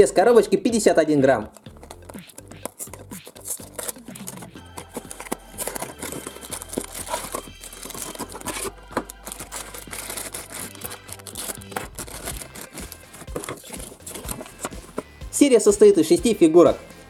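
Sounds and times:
plastic sachet crinkling and tearing: 0:01.5 - 0:15.0
cardboard box opened by hand: 0:01.8 - 0:15.1.

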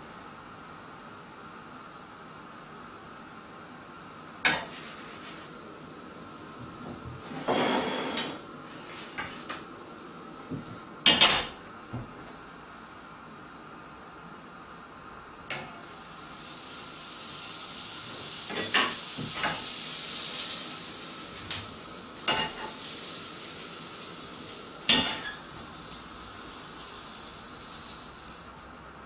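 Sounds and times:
butter sizzling in frying pan: 0:15.7 - 0:29.0.

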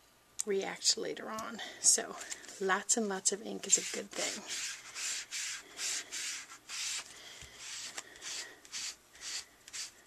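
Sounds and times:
applicator scrubbing on cardstock: 0:03.6 - 0:10.0.

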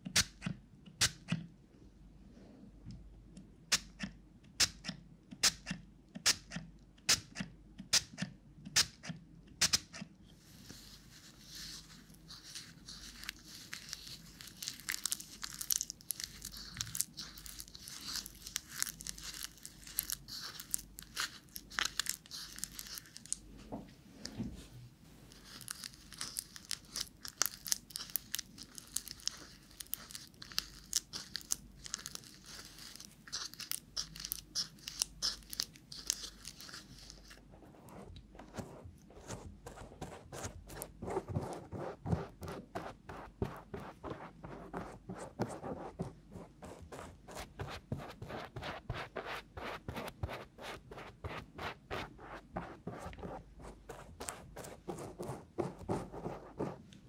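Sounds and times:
brush squelching wet clay: 0:10.4 - 0:23.5, 0:25.2 - 0:37.5.

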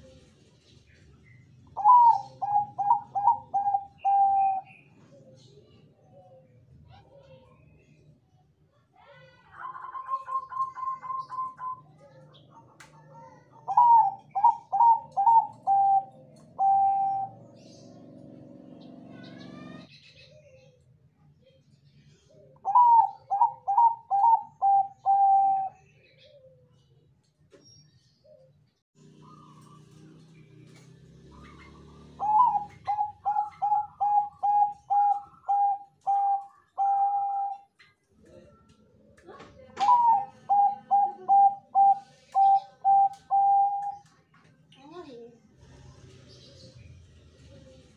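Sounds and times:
dove cooing: 0:01.7 - 0:05.5, 0:09.6 - 0:12.4, 0:13.1 - 0:18.4, 0:22.3 - 0:26.9, 0:28.2 - 0:37.8, 0:39.6 - 0:44.2.

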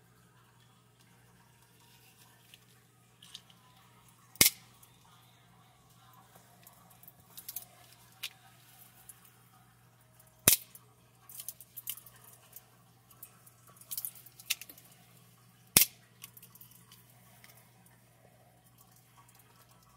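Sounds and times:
blade folding clicks: 0:04.4 - 0:04.6, 0:10.5 - 0:12.1
switchblade snapping open: 0:04.4 - 0:04.6.

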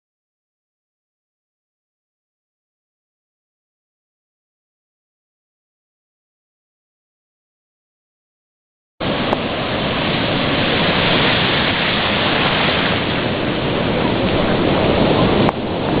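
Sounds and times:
loud steady rushing noise: 0:09.0 - 0:16.0.

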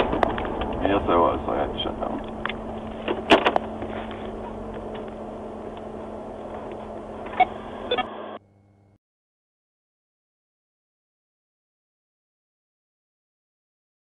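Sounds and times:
car engine and road noise: 0:00.0 - 0:08.4.

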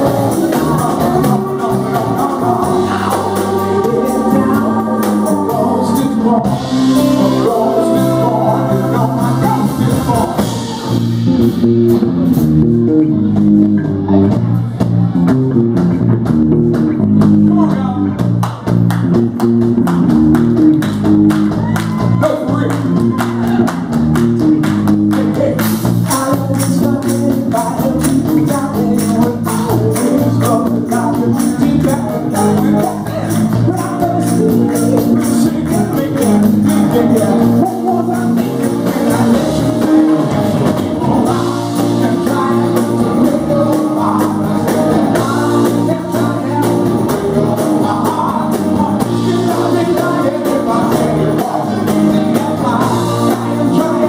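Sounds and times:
male singer: 0:00.0 - 0:11.2, 0:21.6 - 0:23.8, 0:25.1 - 0:54.0
bass guitar: 0:00.0 - 0:54.0
drum kit: 0:00.0 - 0:54.0
electric guitar: 0:00.0 - 0:54.0
congas: 0:18.3 - 0:54.0.

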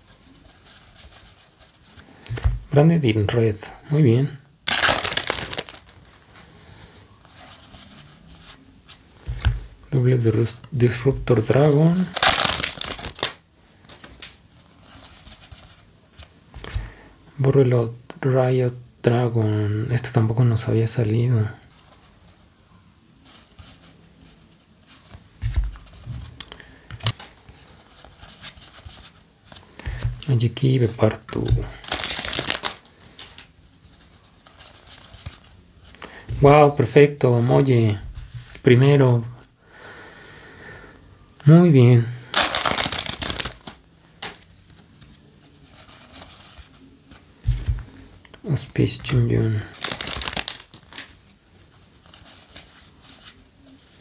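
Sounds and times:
cards being flipped: 0:04.7 - 0:06.2, 0:12.0 - 0:14.4, 0:31.4 - 0:33.5, 0:42.3 - 0:45.1, 0:49.7 - 0:51.2
trading cards sliding and flicking: 0:04.9 - 0:05.9, 0:31.9 - 0:33.5.

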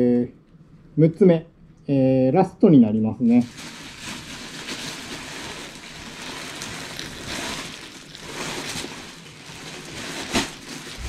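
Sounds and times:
plastic bag rustling: 0:03.4 - 0:11.0.

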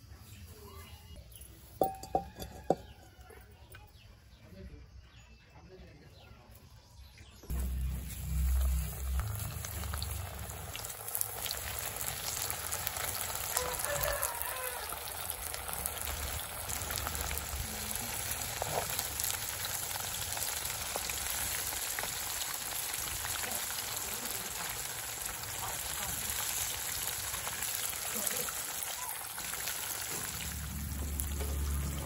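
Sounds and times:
fish deep-frying in hot oil: 0:07.5 - 0:32.0.

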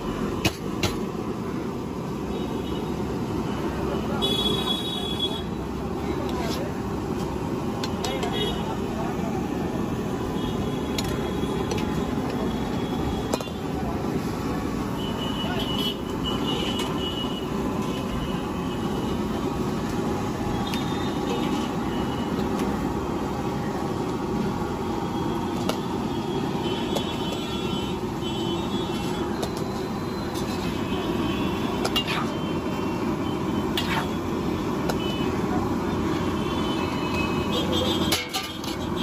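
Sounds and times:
street food stall rumble: 0:00.0 - 0:39.0
metal ladle clinking on pan: 0:38.0 - 0:38.8.

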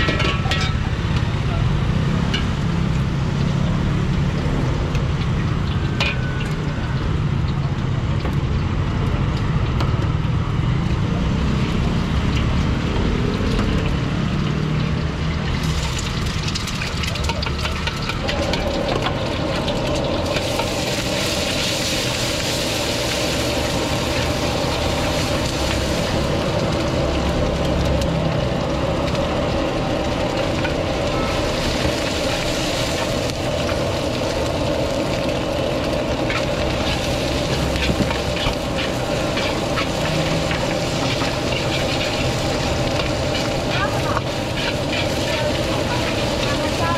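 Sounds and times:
food sizzling in oil: 0:00.0 - 0:09.8, 0:10.5 - 0:46.9
gas burner roaring: 0:00.0 - 0:46.9
metal ladle scraping a wok: 0:15.6 - 0:22.0, 0:36.3 - 0:46.9.

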